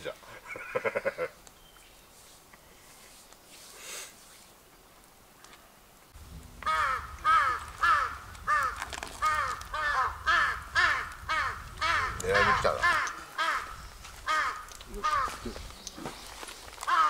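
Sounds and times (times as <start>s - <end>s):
bird harsh calls: 6.7s - 17.0s.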